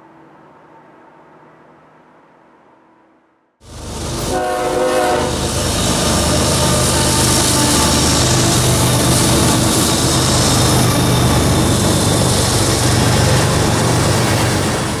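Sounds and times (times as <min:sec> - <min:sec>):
locomotive engine drone: 0:03.6 - 0:15.0
wheel and rail rumble: 0:03.6 - 0:15.0.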